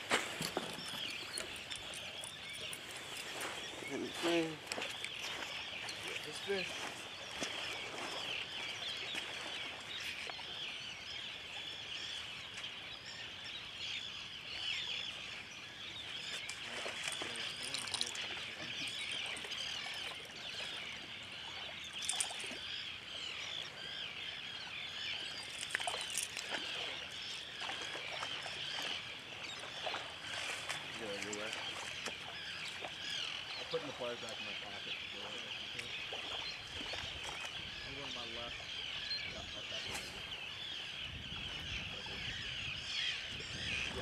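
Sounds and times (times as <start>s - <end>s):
birds chirping: 0.0s - 44.0s.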